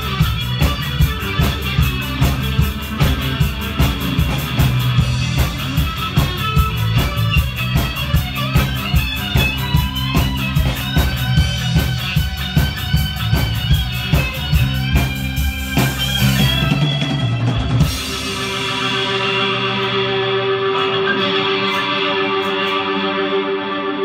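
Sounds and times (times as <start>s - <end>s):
drum kit fast beat: 0.0s - 20.9s
amplified guitar: 0.0s - 24.0s
live rock band: 0.0s - 24.0s.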